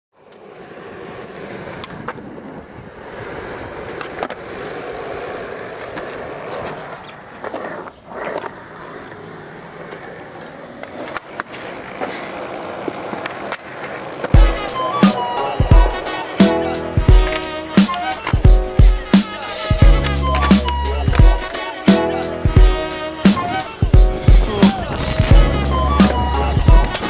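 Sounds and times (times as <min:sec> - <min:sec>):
skateboard wheels rolling on concrete: 0:00.1 - 0:27.0
skateboard clacking on ground: 0:00.2 - 0:16.6, 0:17.2 - 0:22.1.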